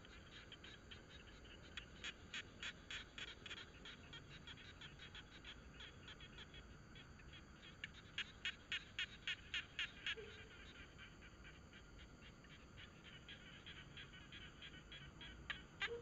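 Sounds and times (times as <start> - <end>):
small animal calling rapidly: 7.3 - 16.0.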